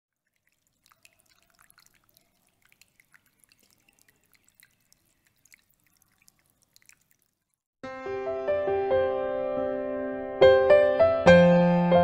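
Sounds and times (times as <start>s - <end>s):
water dripping into a bowl: 0.1s - 7.7s.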